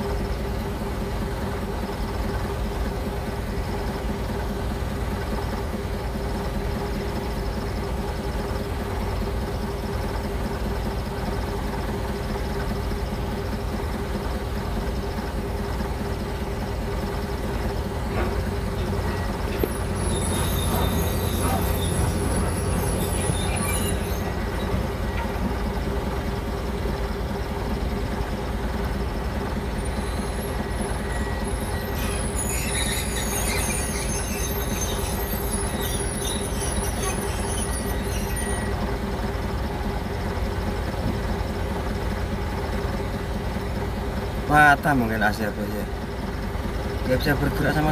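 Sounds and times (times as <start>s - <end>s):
heavy diesel machinery running: 0.0s - 47.9s
high metallic squeals: 17.6s - 25.7s, 29.7s - 39.0s.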